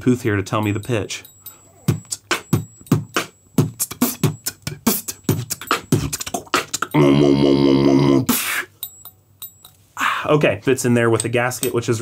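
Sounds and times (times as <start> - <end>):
rhythmic percussive beats: 0.6 - 7.1.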